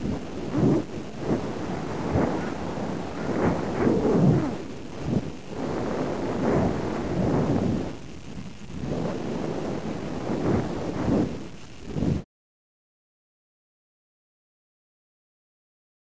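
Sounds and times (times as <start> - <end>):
wind buffeting microphone: 0.0 - 12.2.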